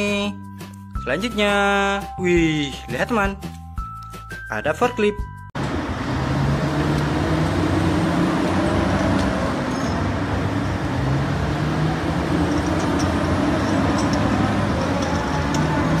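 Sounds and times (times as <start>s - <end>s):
heavy diesel engine running: 5.6s - 16.0s.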